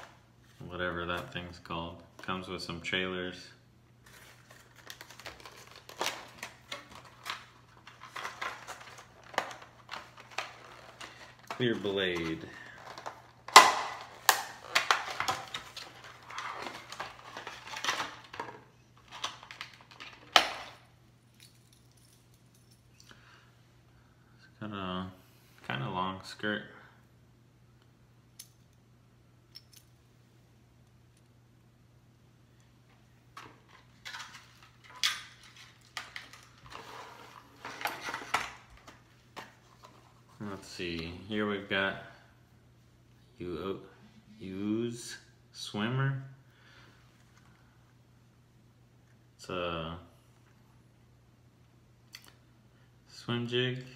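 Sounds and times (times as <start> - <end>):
plastic packaging crinkling: 4.0 - 18.4.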